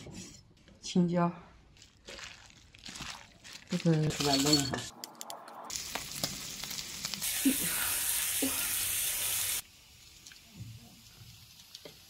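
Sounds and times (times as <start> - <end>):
beef sizzling on grill pan: 5.7 - 12.0.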